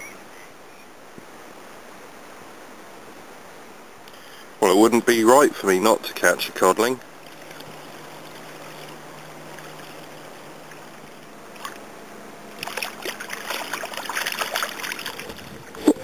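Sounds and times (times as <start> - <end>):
water trickling: 5.8 - 11.9, 12.5 - 16.0
fish thrashing and splashing: 7.2 - 10.9, 12.6 - 16.0.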